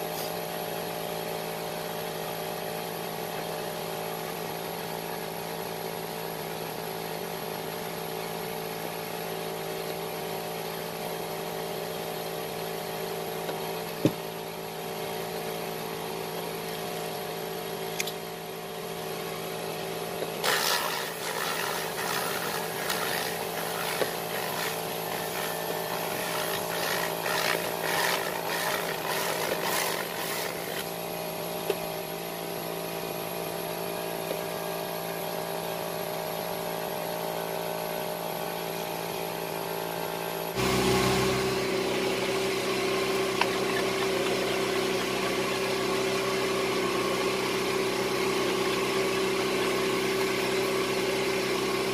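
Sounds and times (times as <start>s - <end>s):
machine hum: 20.2s - 30.9s, 40.6s - 51.0s.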